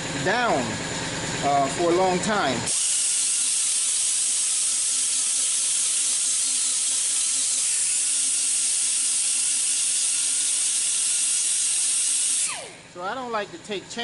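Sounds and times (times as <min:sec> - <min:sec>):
rotary sanding tool hissing: 0:02.7 - 0:12.8.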